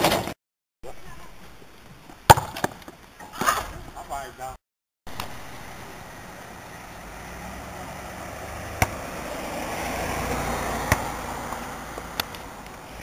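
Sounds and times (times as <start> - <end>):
car driving slowly past: 5.1 - 13.0.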